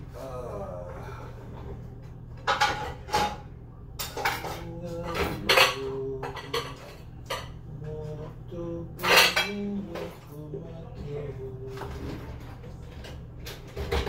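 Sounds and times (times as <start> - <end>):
pots and pans clattering: 1.5 - 8.4, 9.0 - 10.4, 11.7 - 14.0.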